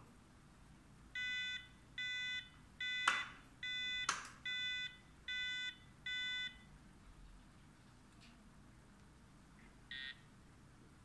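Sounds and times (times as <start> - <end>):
wheelchair controller warning beeps: 1.2 - 6.7.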